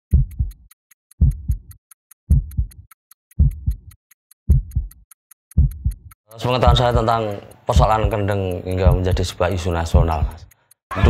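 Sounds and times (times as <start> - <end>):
heartbeat double thump: 0.1 - 0.6, 1.2 - 7.0
fast high ticking: 0.1 - 11.0.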